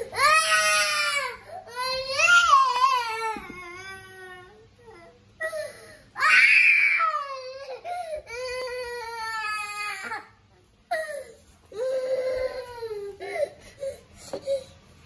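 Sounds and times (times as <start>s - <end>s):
toddler crying: 0.0s - 10.3s, 10.9s - 14.7s.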